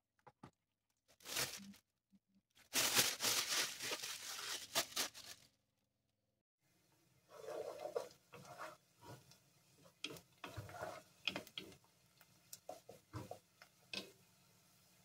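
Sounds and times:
spoon stirring vegetables in oil: 7.1s - 15.0s
spoon scraping and knocking pot: 7.3s - 9.3s, 9.9s - 11.8s.

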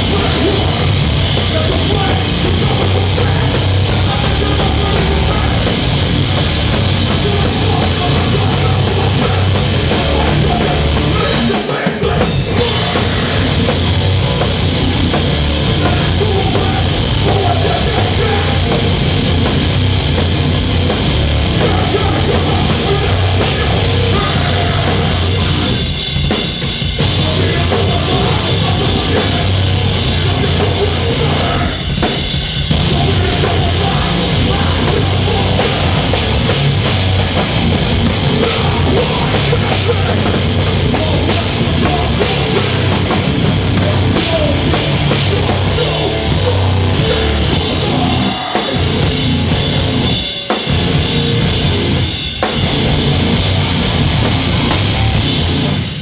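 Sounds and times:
distorted electric guitars: 0.0s - 56.0s
pounding drum kit: 0.0s - 56.0s
vocals: 0.0s - 56.0s.

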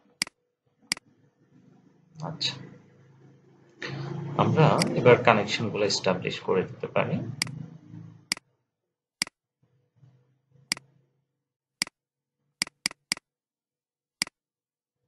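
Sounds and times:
computer mouse button clicking: 12.6s - 13.2s.

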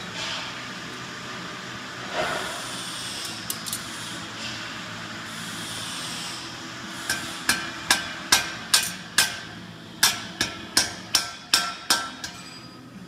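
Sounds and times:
hammer striking iron on anvil: 7.1s - 12.7s.

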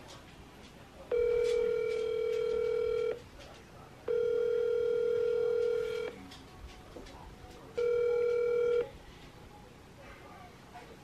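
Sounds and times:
phone ringback tone: 1.1s - 3.2s, 4.1s - 6.2s, 7.8s - 8.9s.

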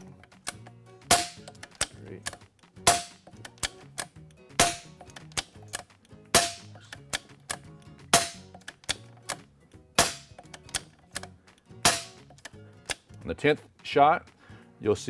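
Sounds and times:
cocking lever clicks: 0.2s - 0.8s, 1.4s - 2.5s, 3.2s - 6.2s, 6.8s - 9.5s, 10.3s - 11.4s.

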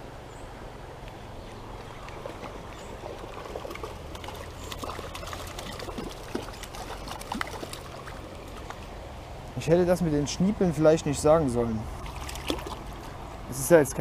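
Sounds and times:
stream water trickling: 0.0s - 14.0s
small water splashes: 1.4s - 9.1s, 11.8s - 13.6s.

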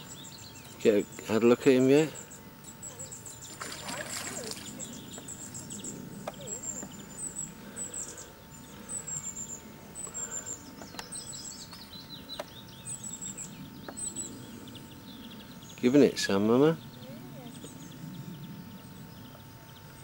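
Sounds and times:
falling bird calls: 0.0s - 20.0s
songbird chirping: 0.0s - 20.0s.

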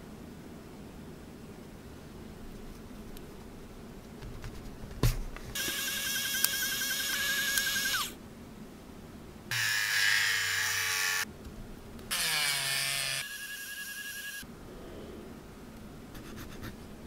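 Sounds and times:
rotary tool motor whirring: 5.6s - 8.2s, 9.5s - 11.2s, 12.1s - 14.4s.

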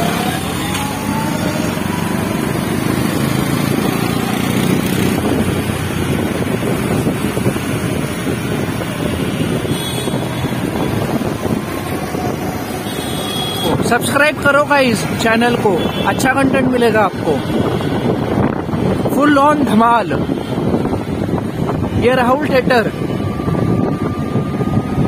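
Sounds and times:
motorbike engine: 0.0s - 13.8s
city traffic: 0.0s - 25.0s
wind rushing over microphone: 0.0s - 25.0s.

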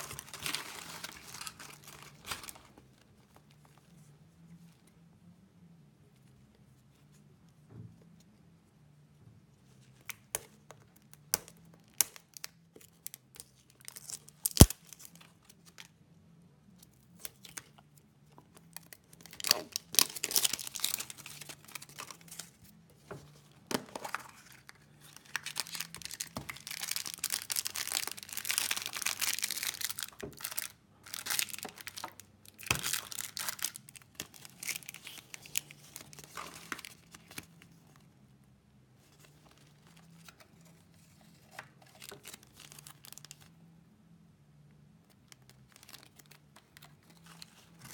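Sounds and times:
plastic wrapping tearing and crinkling: 0.0s - 2.8s, 11.8s - 15.9s, 18.6s - 22.6s, 24.0s - 37.5s, 45.3s - 47.9s.

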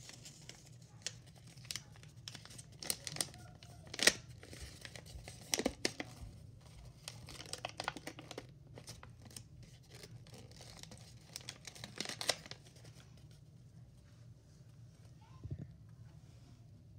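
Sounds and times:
paper crinkling: 0.0s - 13.5s.

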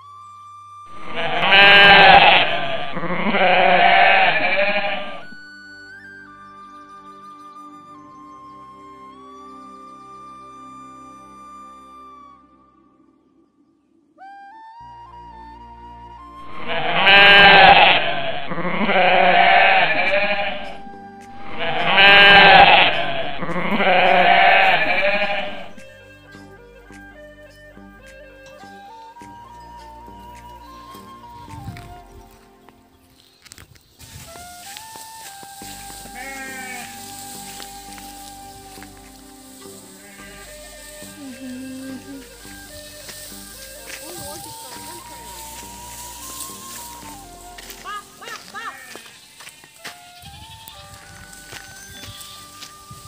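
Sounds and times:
background music: 0.0s - 53.0s
sheep bleating: 1.0s - 5.4s, 16.7s - 20.8s, 21.5s - 25.8s, 36.1s - 38.0s, 39.8s - 42.7s.

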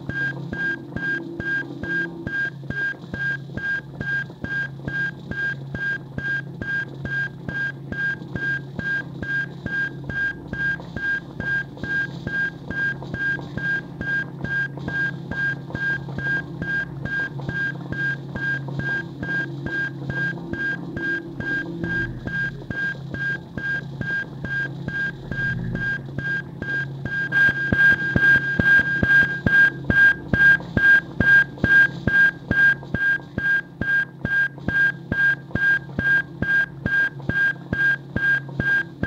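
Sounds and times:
pulsing high electronic beep: 20.6s - 23.0s, 24.1s - 29.3s
low electronic drone: 20.8s - 22.7s, 25.1s - 26.2s.

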